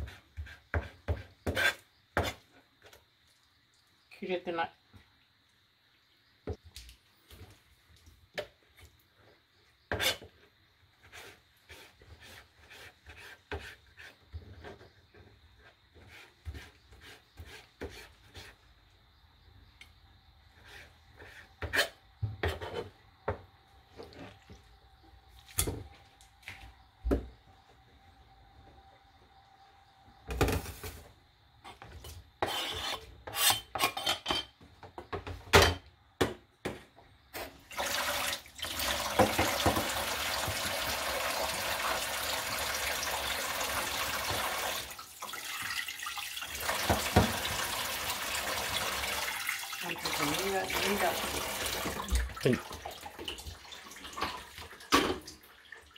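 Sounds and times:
food rubbed and rinsed by hand: 0:08.8 - 0:18.9, 0:37.5 - 0:54.9
tap water running into pan: 0:37.7 - 0:55.9.

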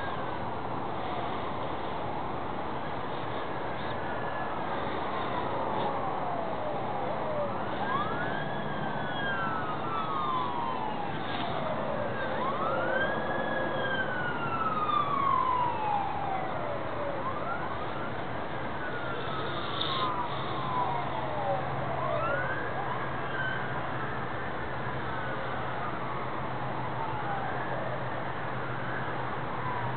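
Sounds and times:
emergency siren wailing: 0:02.8 - 0:29.9.

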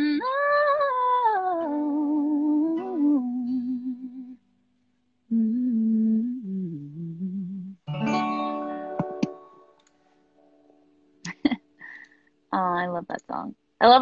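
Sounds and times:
woman humming: 0:05.3 - 0:07.8
acoustic guitar chord strummed: 0:07.8 - 0:10.6
guitar string clicks: 0:08.9 - 0:10.0.

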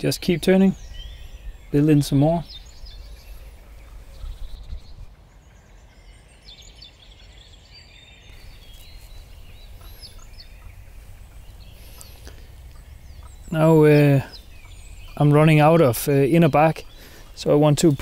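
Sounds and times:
faint bird chirps: 0:00.0 - 0:18.0
wind rumble on microphone: 0:02.4 - 0:05.2.

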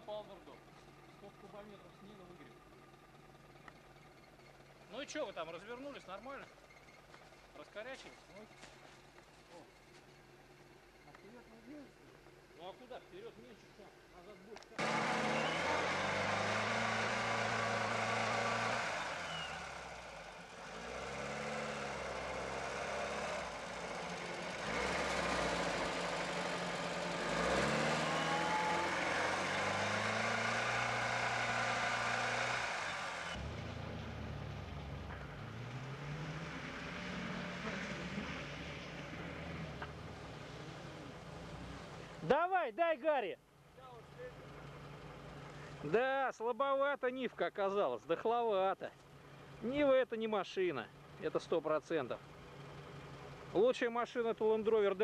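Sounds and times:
distant engine revving: 0:14.6 - 0:42.2
engine revving: 0:14.6 - 0:42.3.

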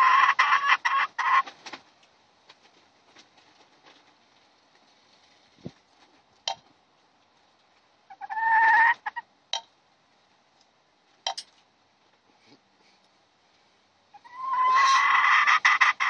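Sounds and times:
hen squawking: 0:08.1 - 0:09.2, 0:14.2 - 0:16.0.

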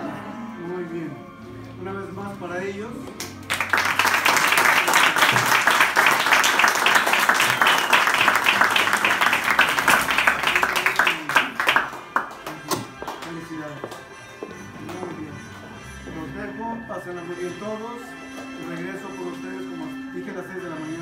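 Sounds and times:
group applauding: 0:03.2 - 0:14.1.

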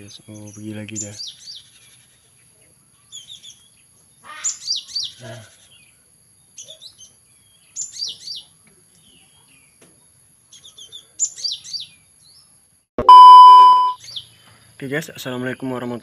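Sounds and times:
electronic beep: 0:13.0 - 0:14.0.

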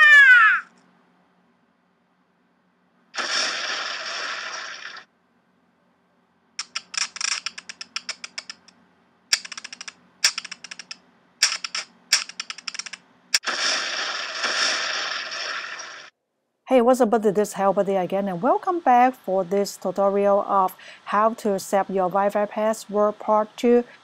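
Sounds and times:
hissing explosion blast: 0:03.2 - 0:05.0, 0:13.4 - 0:16.1
hissing burst: 0:03.2 - 0:05.1, 0:13.4 - 0:16.1
sharp crack: 0:03.2 - 0:05.1, 0:10.2 - 0:16.1
rapid clicks: 0:06.6 - 0:08.7, 0:09.3 - 0:15.6.

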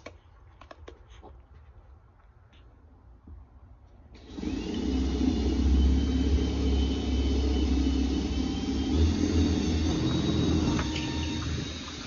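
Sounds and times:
electric drill boring into wall: 0:04.2 - 0:12.0.

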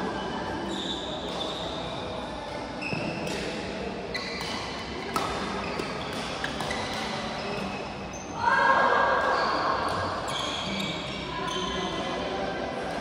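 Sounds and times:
shoes squeaking on court: 0:00.2 - 0:08.4, 0:10.0 - 0:12.1
racket hitting shuttlecock: 0:04.4 - 0:07.4.

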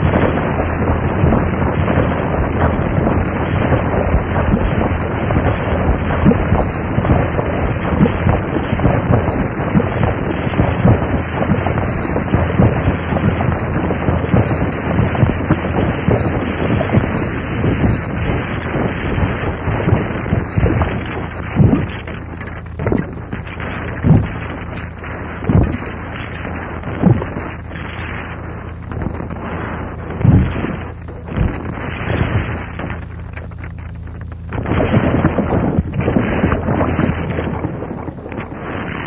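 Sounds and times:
sharp low hits: 0:00.0 - 0:39.0.

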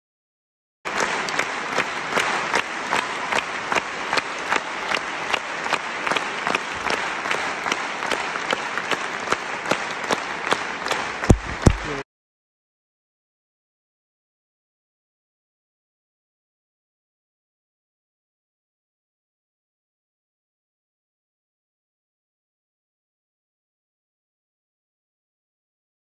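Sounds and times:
audience applauding: 0:00.9 - 0:12.0
close hands clapping: 0:00.9 - 0:12.0
low thumps: 0:11.3 - 0:11.9.

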